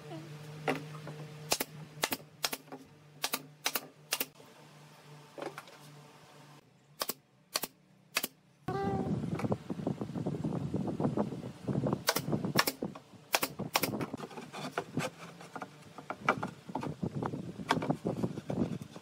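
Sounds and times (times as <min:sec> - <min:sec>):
nail gun firing into wood: 0:01.5 - 0:04.3, 0:07.0 - 0:08.4, 0:12.0 - 0:14.0.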